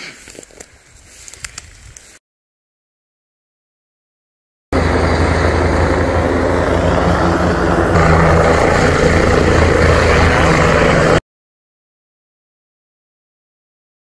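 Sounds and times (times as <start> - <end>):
helicopter rotor throbbing: 4.7 - 11.2.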